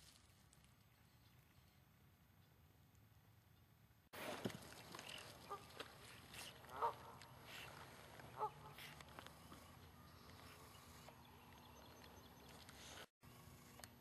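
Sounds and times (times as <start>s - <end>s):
honking animal calls: 6.7s - 7.2s.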